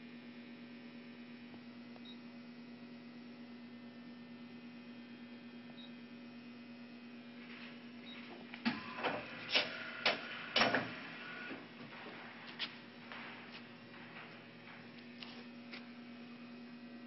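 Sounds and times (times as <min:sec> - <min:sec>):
lathe electrical hum: 0:00.0 - 0:17.0
sharp mechanical clunks: 0:08.6 - 0:11.7.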